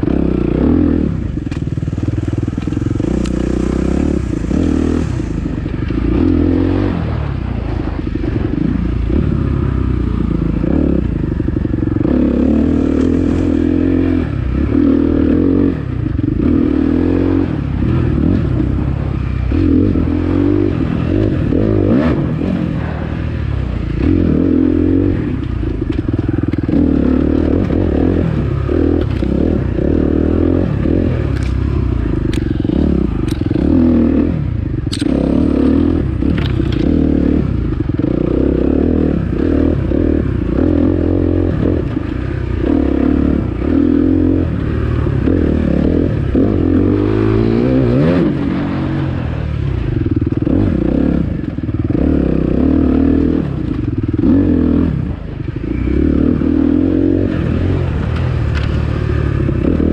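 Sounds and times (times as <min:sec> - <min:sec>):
dirt bike engine revving: 0:00.0 - 0:59.9
sharp clicks: 0:34.9 - 0:35.2.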